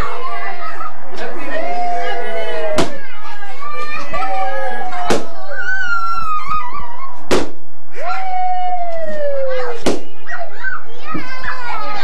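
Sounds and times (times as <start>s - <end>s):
squealing whooping voices: 0.0s - 7.3s, 7.9s - 12.0s
balloon pops: 7.3s - 7.6s, 9.8s - 10.1s.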